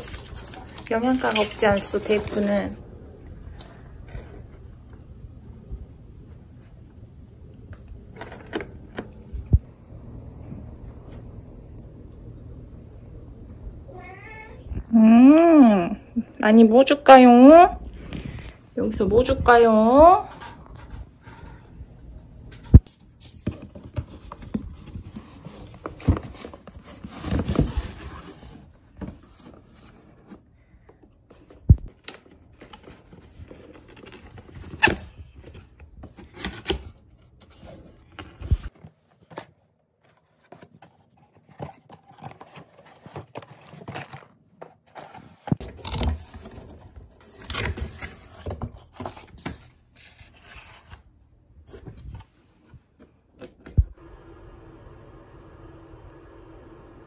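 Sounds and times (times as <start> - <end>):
cardboard and paper rustling: 0.0 - 2.8, 22.8 - 53.8.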